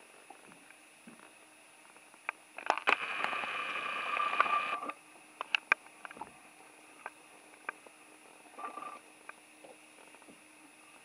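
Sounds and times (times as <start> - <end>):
camcorder zoom motor whining: 2.8 - 5.0.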